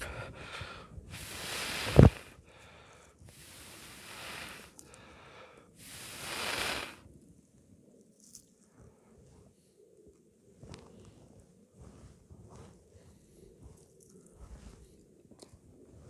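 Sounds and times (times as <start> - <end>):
person blowing on embers: 0.0 - 7.1
quiet inhalations: 0.0 - 7.2, 10.8 - 15.3.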